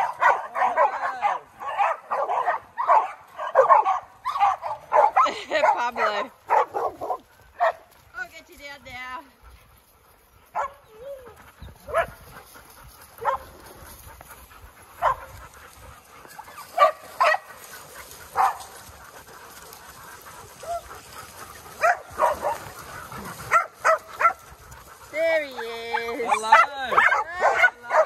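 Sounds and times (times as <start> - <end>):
dog barking: 0.0 - 7.9, 10.5 - 10.9, 11.9 - 12.2, 13.2 - 13.5, 15.0 - 15.3, 16.5 - 17.6, 18.3 - 18.7, 21.7 - 24.5, 25.6 - 28.0.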